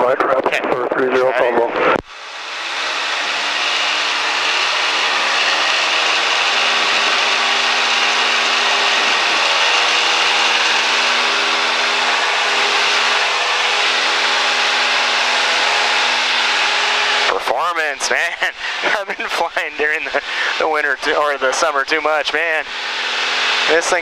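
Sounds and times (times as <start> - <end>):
airplane engine and propeller drone: 0.0 - 24.0.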